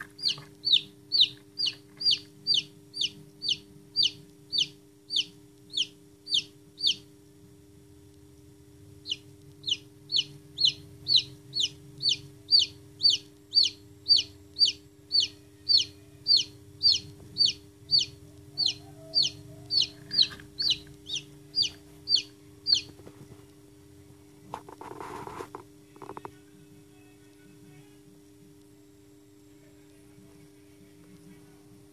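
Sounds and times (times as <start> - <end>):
chick peeping: 0.0 - 7.1, 9.0 - 23.3.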